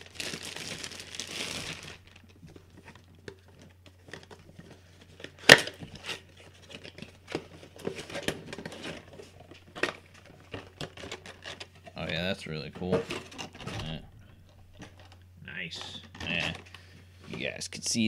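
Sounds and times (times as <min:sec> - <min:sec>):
plastic packaging crinkling: 0:00.0 - 0:12.2.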